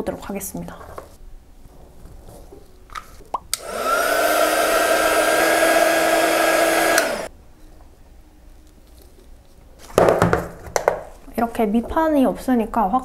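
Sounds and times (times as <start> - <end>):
heat gun fan whine: 3.5 - 7.3.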